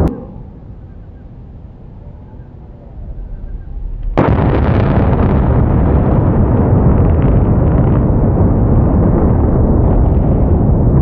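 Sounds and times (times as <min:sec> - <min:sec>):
loud continuous rumble: 0:00.0 - 0:11.0
explosive demolition blast: 0:03.3 - 0:11.0.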